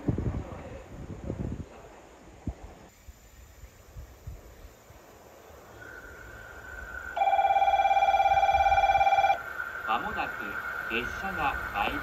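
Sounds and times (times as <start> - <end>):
faint insects: 0.0 - 12.0
faint steady high tone: 6.8 - 12.0.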